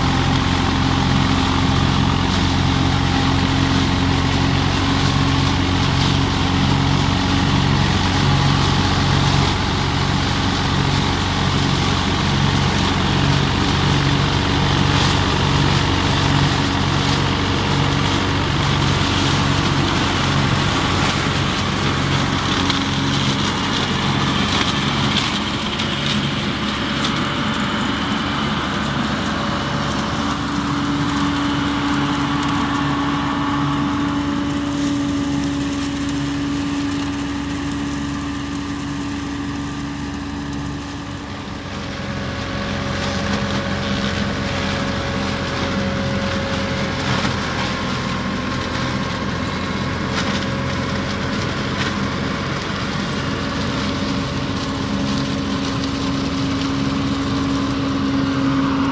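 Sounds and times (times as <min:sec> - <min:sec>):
flail mower chopping stalks: 0:00.0 - 0:58.9
tractor diesel engine running: 0:00.0 - 0:58.9.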